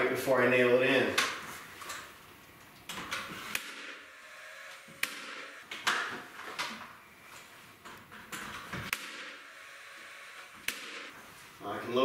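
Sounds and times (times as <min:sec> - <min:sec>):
nail gun shots: 0:03.5 - 0:04.0, 0:05.0 - 0:06.0, 0:08.9 - 0:09.5, 0:10.6 - 0:11.1.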